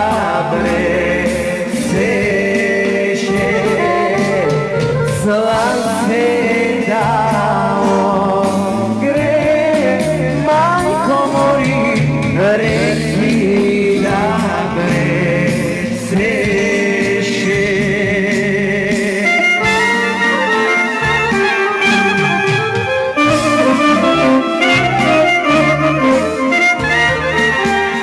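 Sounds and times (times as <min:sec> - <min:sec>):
person singing folk song: 0:00.0 - 0:22.0
instrumental accompaniment: 0:00.0 - 0:28.0.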